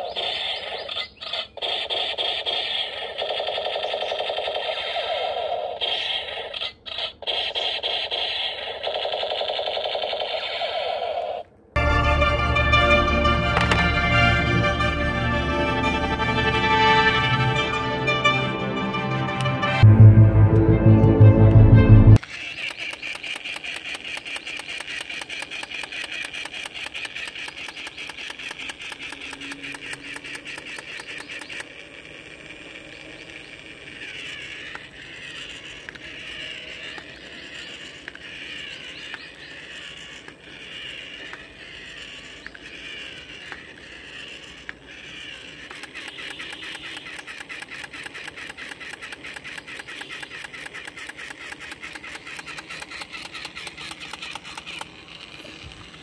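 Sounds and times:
toy motor and gears clicking: 0.0s - 11.5s, 22.2s - 56.0s
warbling siren-like electronic tone: 11.8s - 22.2s.

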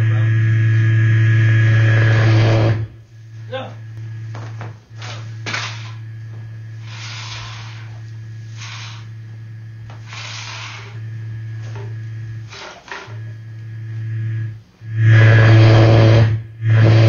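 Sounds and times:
low electrical hum: 0.0s - 17.0s
short hissing bursts: 6.8s - 9.2s, 10.0s - 11.1s.

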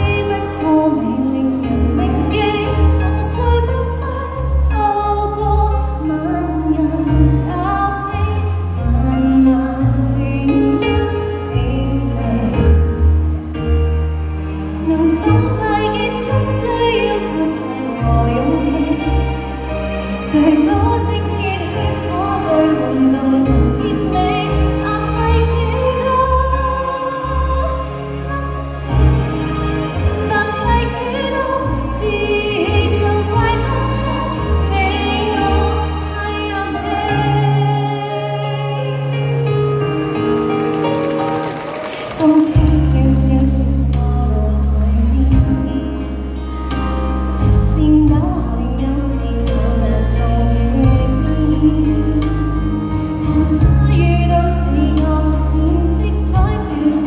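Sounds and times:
woman singing a slow ballad: 0.0s - 13.3s, 14.7s - 29.2s, 30.2s - 39.6s, 42.2s - 46.8s, 47.4s - 57.0s
backing track music: 0.0s - 57.0s.

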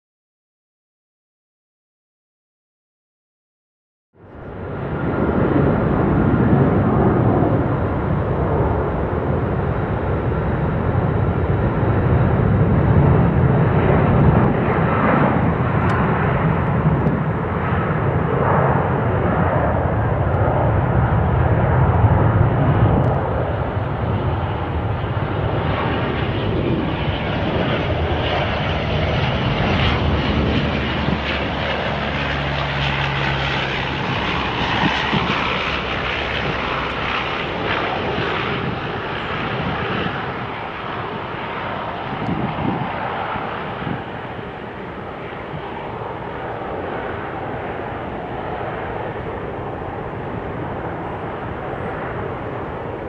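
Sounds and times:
jet engines roaring at takeoff: 4.2s - 53.0s.

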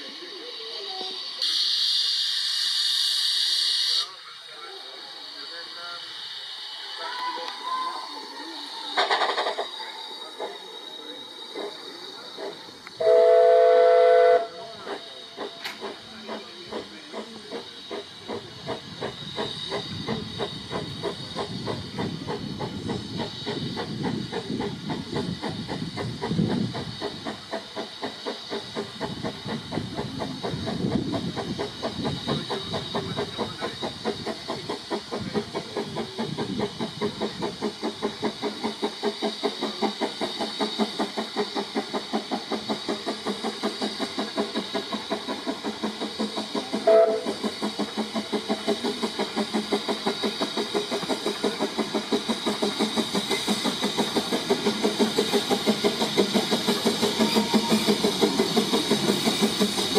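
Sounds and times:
steam locomotive exhaust beats: 0.0s - 59.9s
steam whistle blast: 13.0s - 14.8s, 46.8s - 47.4s, 57.2s - 58.0s.

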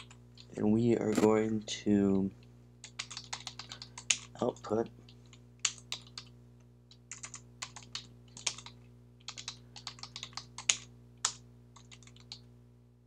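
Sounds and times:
keyboard typing clicks: 2.8s - 4.3s, 7.1s - 12.4s.

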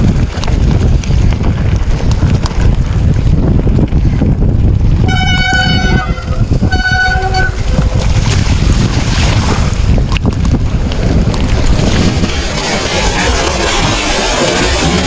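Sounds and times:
wind buffeting microphone: 0.0s - 15.0s
high-pitched horn toots: 5.0s - 7.7s.

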